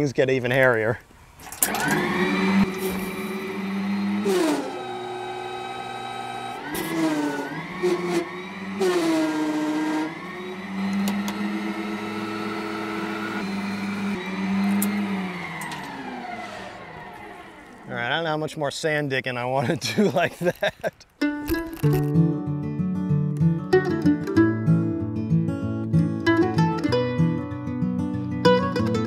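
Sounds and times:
electric motor and hydraulic whine: 0:01.3 - 0:18.0.

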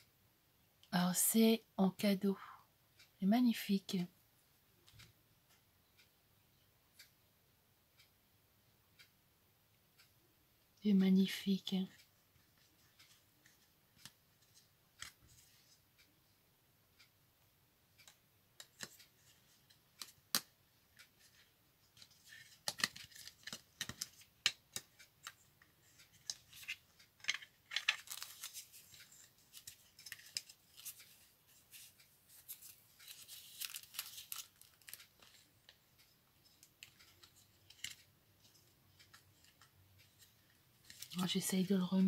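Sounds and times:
crinkly plastic rustling: 0:26.1 - 0:35.8, 0:40.2 - 0:41.4.

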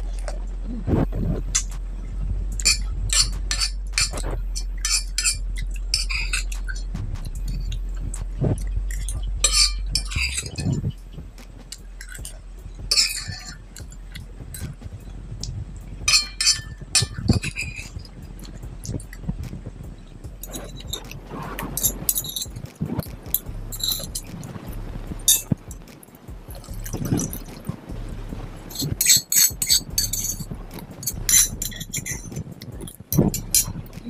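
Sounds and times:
low background hum: 0:00.0 - 0:34.0
metal spoon clinking on glass plate: 0:16.1 - 0:17.9, 0:28.7 - 0:30.4.

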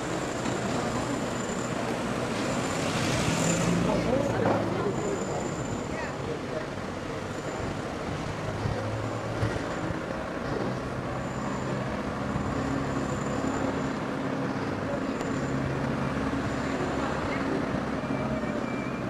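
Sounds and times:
road noise: 0:00.0 - 0:19.0.

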